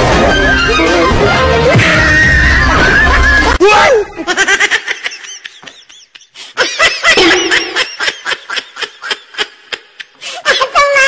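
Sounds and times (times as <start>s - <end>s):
laughter in short bursts: 4.3s - 8.6s.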